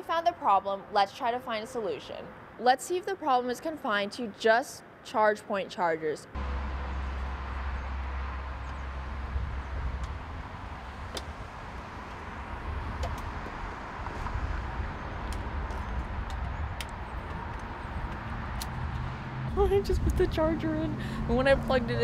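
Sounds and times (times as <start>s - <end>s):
wind rumbling on microphone: 6.4s - 22.0s.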